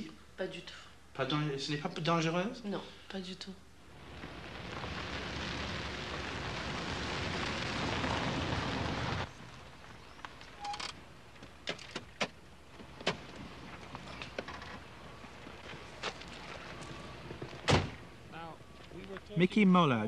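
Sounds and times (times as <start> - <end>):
car tyres on dirt road: 3.8 - 19.3.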